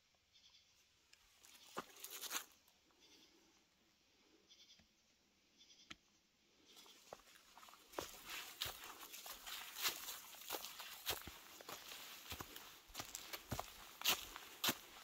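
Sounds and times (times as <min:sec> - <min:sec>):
footsteps crunching on trail: 0:01.4 - 0:02.6, 0:06.7 - 0:15.0.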